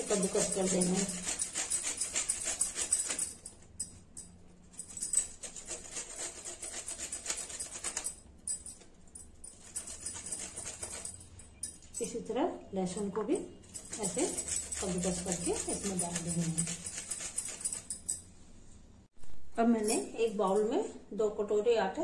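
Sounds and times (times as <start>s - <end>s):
ginger rasping on metal grater: 0.0s - 3.4s, 4.8s - 8.2s, 13.7s - 18.0s.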